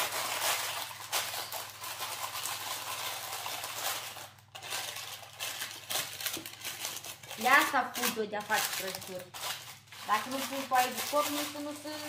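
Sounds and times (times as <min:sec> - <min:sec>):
baking paper crinkling: 0:00.0 - 0:12.0.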